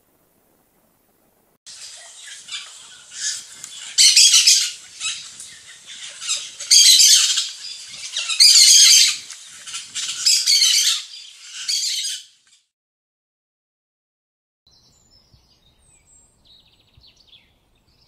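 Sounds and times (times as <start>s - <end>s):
ducklings peeping: 1.7s - 12.2s.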